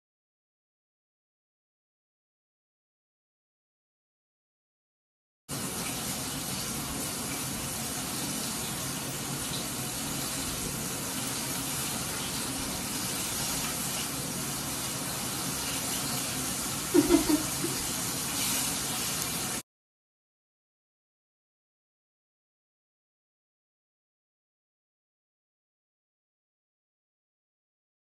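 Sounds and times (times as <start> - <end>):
food sizzling in oil: 5.5 - 19.6.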